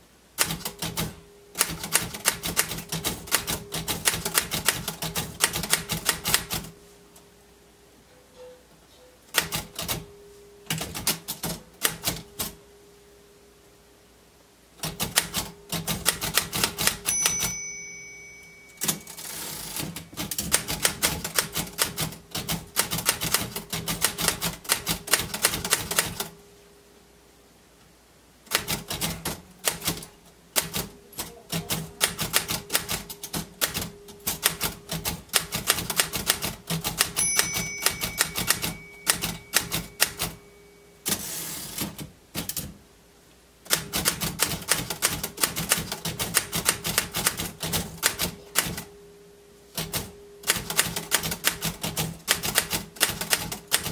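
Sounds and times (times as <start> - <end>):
typewriter carriage return: 0.4 - 6.7, 18.8 - 26.3, 28.5 - 40.4, 41.0 - 42.7, 43.7 - 48.9, 49.8 - 53.9
typewriter keys clacking: 0.4 - 6.7, 9.3 - 10.1, 14.8 - 17.8, 18.8 - 26.3, 28.5 - 40.4, 43.7 - 48.9, 49.8 - 53.9
typewriter margin bell ding: 16.4 - 21.6, 37.0 - 40.9.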